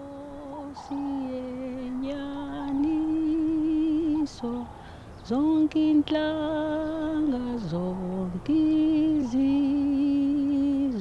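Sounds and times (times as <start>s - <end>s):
woman singing with vibrato: 0.0s - 11.0s
breath: 4.7s - 5.2s.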